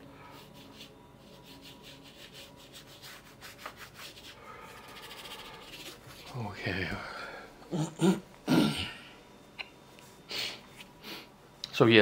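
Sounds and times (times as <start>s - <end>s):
paintbrush scratching on canvas: 0.4s - 6.4s.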